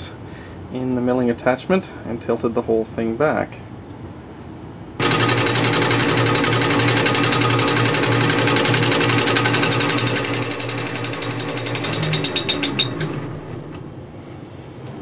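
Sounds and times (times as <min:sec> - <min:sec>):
lathe hum: 0:05.0 - 0:14.2.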